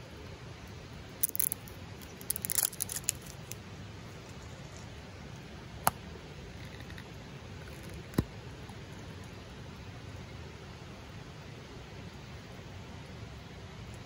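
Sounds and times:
label rustling: 1.2s - 3.6s.

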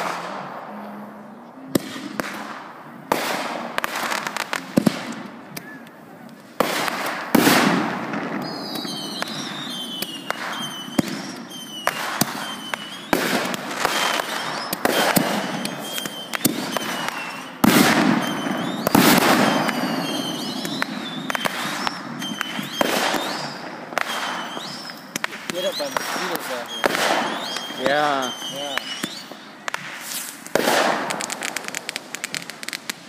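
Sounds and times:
fireworks bursting with sharp bangs: 0.0s - 33.0s
high falling whistles: 8.4s - 13.2s, 13.9s - 30.4s.

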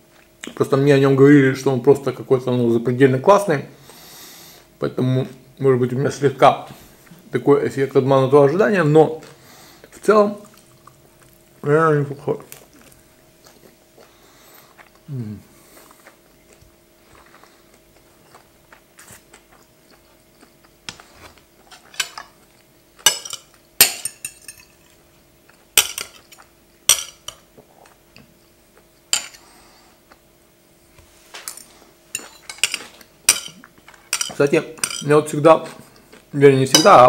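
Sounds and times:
faint steady hum: 0.0s - 37.0s
cutlery clinking on a plate: 23.0s - 24.9s, 31.4s - 35.1s, 36.8s - 37.0s.

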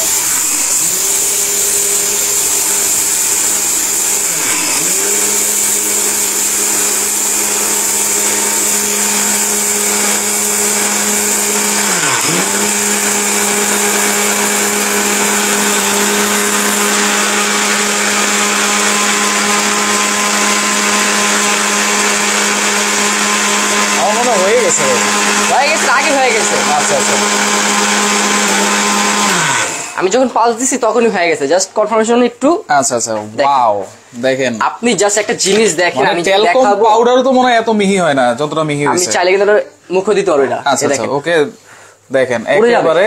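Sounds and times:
blender grinding rice: 0.0s - 30.4s.

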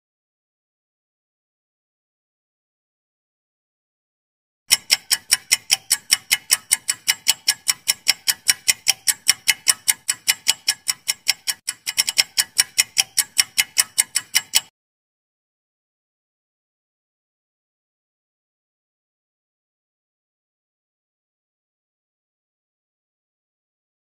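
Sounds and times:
fast clock ticking: 4.7s - 14.7s.

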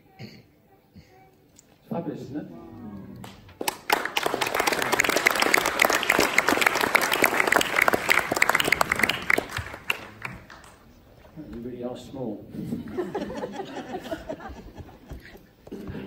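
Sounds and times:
congregation applauding: 3.2s - 11.0s.

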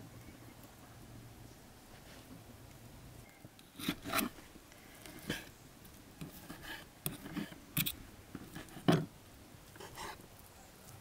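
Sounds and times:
fork and knife scraping wooden board: 3.7s - 4.4s, 6.2s - 9.1s, 9.8s - 10.2s.

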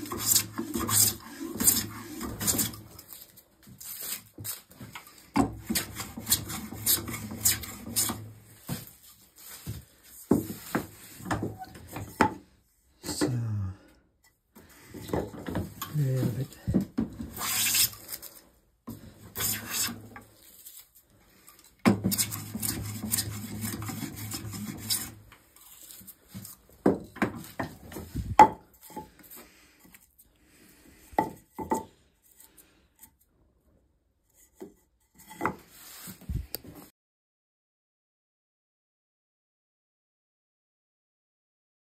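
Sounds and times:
hand plane shaving wood: 0.0s - 3.2s, 4.9s - 8.4s, 16.0s - 20.4s, 21.2s - 29.2s.

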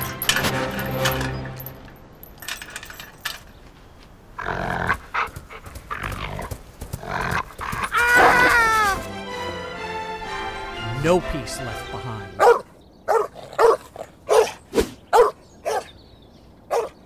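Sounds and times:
dog barking: 12.4s - 16.0s, 16.7s - 17.0s.

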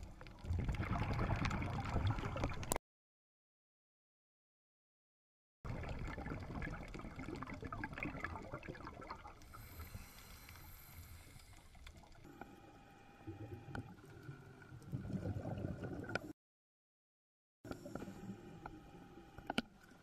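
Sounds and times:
scuba bubbles gurgling: 0.1s - 2.8s, 5.7s - 12.2s, 13.2s - 16.3s
faint steady whine: 9.4s - 14.9s, 17.7s - 20.0s.

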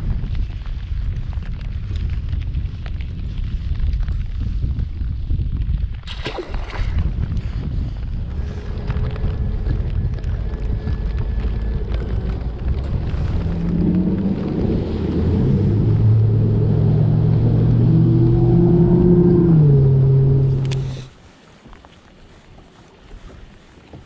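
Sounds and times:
wind noise: 0.0s - 24.0s
boat motor running: 8.2s - 21.1s.

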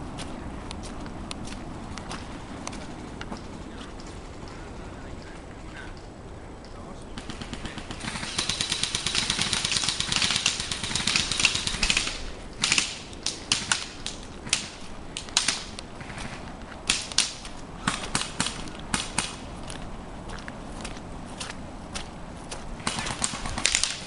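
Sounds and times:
airsoft guns firing: 7.2s - 19.5s, 22.8s - 24.0s.

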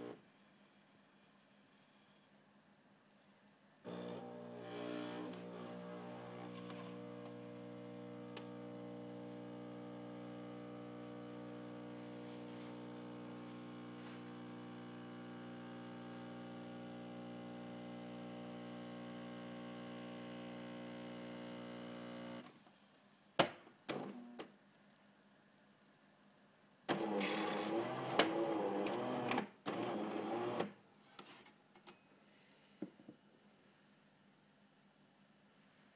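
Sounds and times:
coffee machine pump humming: 3.9s - 22.4s.

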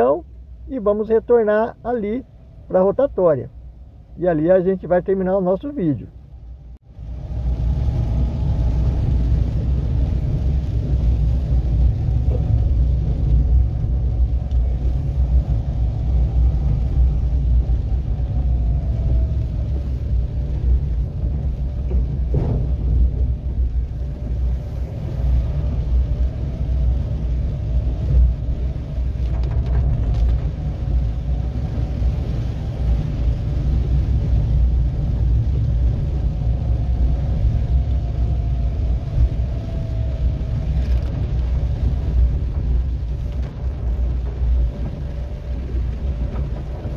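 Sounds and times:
car cabin road rumble: 0.0s - 46.9s.

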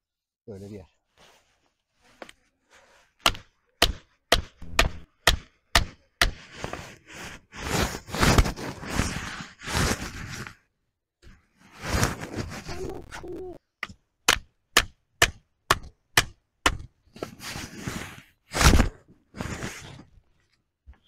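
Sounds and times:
hatchet chopping firewood: 3.2s - 6.7s, 13.7s - 17.3s
rough scraping: 4.6s - 5.1s, 11.6s - 13.4s.

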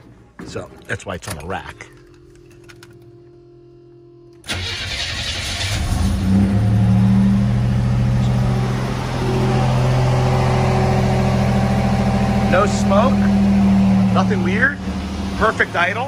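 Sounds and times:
car engine starting and idling: 4.3s - 16.0s.

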